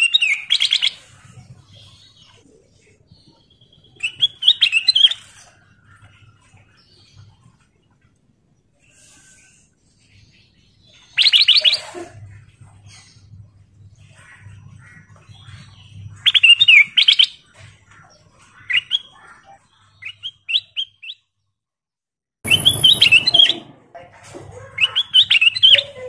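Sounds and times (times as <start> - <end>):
bird singing quick chirps: 22.5 - 23.7.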